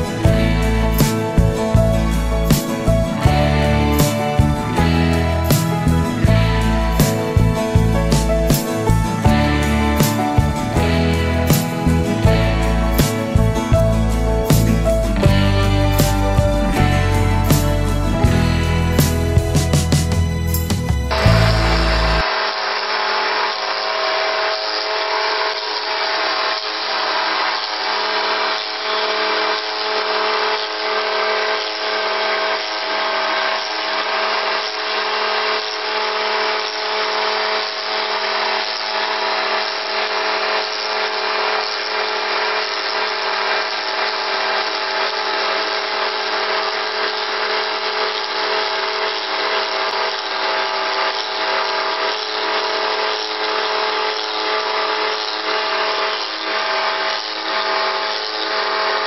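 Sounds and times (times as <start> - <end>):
hiss of wood cutting: 0.0 - 16.9, 19.0 - 59.0
wood lathe humming: 0.0 - 59.0.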